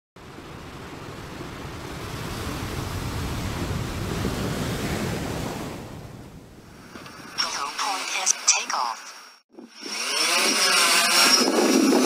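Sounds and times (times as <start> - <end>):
ocean surf washing onto beach: 0.2 - 8.2.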